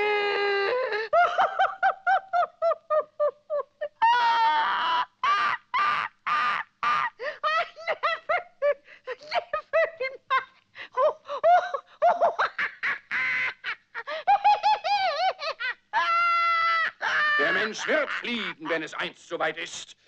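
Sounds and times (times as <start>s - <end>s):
cartoon owl laughing: 11.5s - 16.4s, 17.2s - 19.0s.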